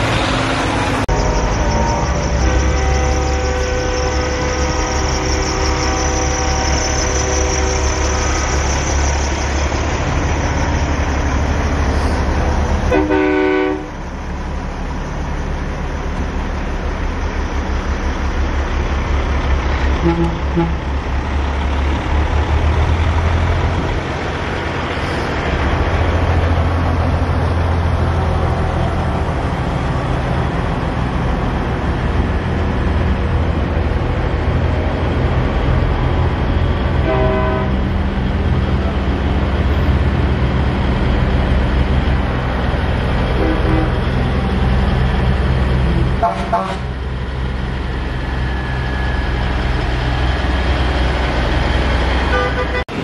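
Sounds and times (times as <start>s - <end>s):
truck diesel engines running: 0.0s - 53.0s
air horn blast: 2.4s - 8.2s, 12.9s - 14.0s, 20.0s - 20.8s, 37.0s - 37.8s, 43.4s - 44.0s, 45.9s - 46.9s, 52.3s - 53.0s.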